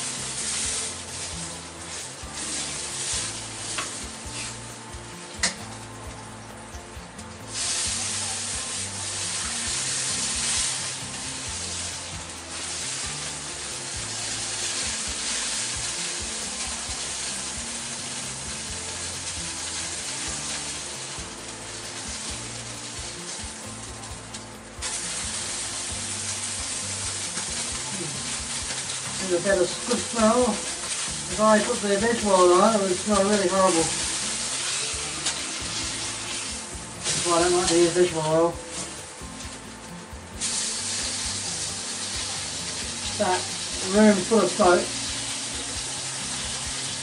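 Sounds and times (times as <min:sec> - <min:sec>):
meat sizzling in a wok: 0:00.0 - 0:47.0.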